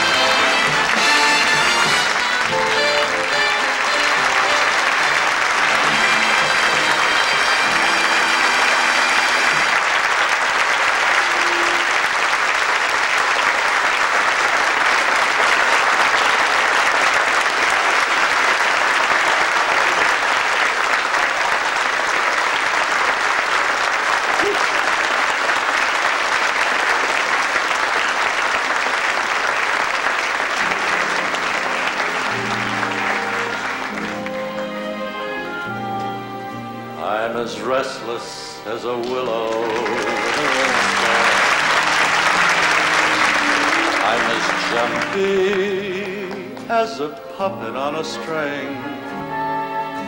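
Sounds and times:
music playing: 0:00.0 - 0:13.2, 0:30.3 - 0:50.0
audience applauding: 0:00.0 - 0:50.0.

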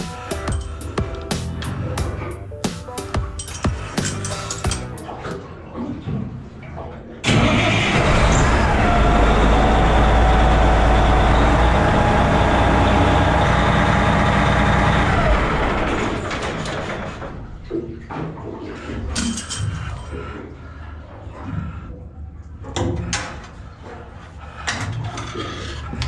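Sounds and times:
diesel engine rumbling with whine: 0:07.3 - 0:17.2.

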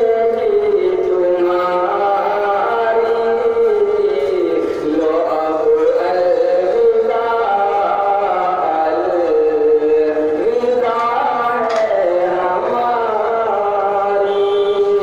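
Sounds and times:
man singing unaccompanied: 0:00.0 - 0:15.0.

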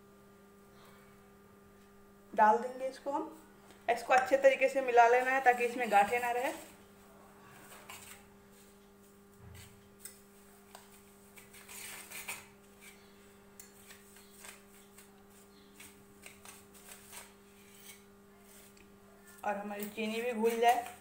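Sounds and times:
wire whisk scraping a pan: 0:05.0 - 0:06.7, 0:09.5 - 0:18.8, 0:19.8 - 0:21.0.

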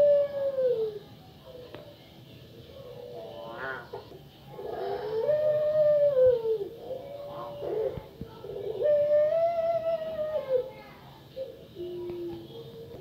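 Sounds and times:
dove cooing: 0:00.0 - 0:01.7, 0:02.8 - 0:10.8.

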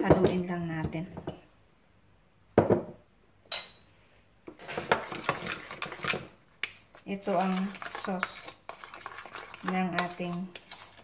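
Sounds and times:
spoon clinking in bowl: 0:03.5 - 0:03.9
spoon stirring and scraping sauce: 0:04.5 - 0:11.0.

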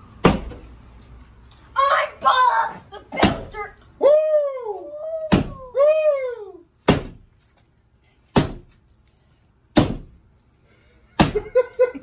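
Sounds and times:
wooden board striking wall panel: 0:00.2 - 0:00.6, 0:05.3 - 0:05.7, 0:06.8 - 0:07.2, 0:09.7 - 0:10.2, 0:11.2 - 0:11.5
child shouting: 0:01.8 - 0:06.4.

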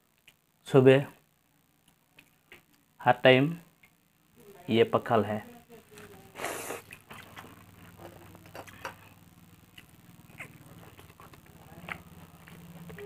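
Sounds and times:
steady low hum: 0:00.0 - 0:13.0
person chewing with wet mouth clicks: 0:06.8 - 0:09.1, 0:09.7 - 0:13.0.

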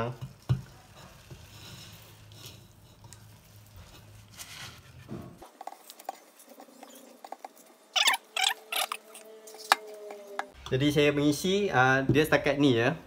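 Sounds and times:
spoon scraping metal colander: 0:00.8 - 0:10.3.

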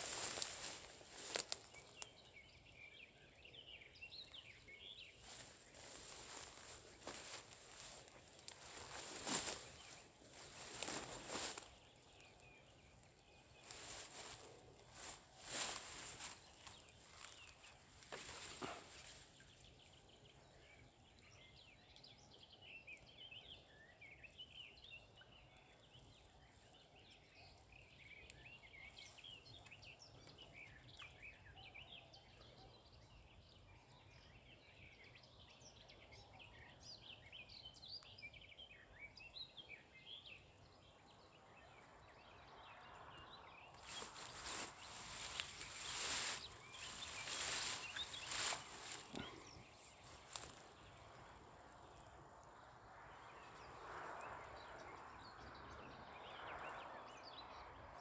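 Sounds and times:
rustling handling noise: 0:00.0 - 0:02.0, 0:05.2 - 0:11.8, 0:13.6 - 0:19.2, 0:43.8 - 0:50.6
small birds chirping: 0:00.0 - 0:57.7.

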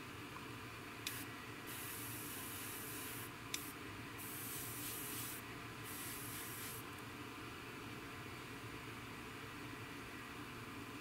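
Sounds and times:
airbrush spraying hiss: 0:01.1 - 0:06.9.

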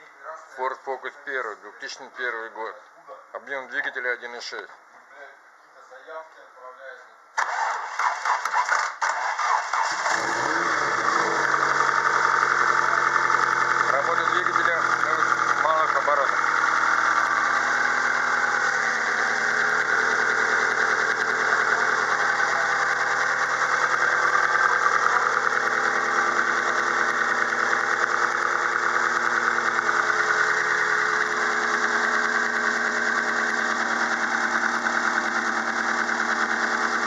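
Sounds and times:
car engine idling: 0:09.7 - 0:37.0.

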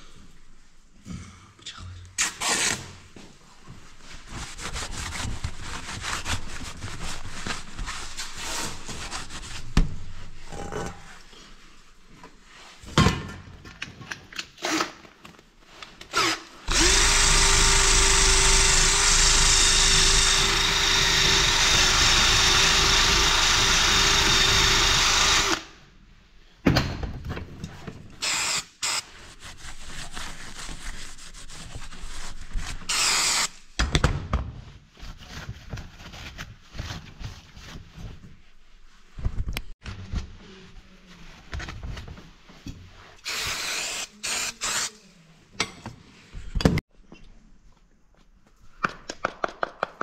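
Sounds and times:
power tool motor whining: 0:16.2 - 0:25.7.

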